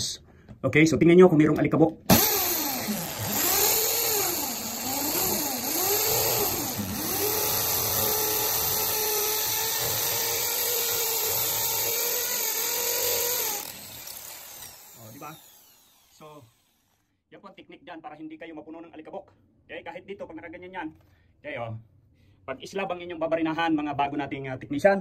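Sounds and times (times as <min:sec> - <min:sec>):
electric drill boring into concrete: 0:02.1 - 0:17.1.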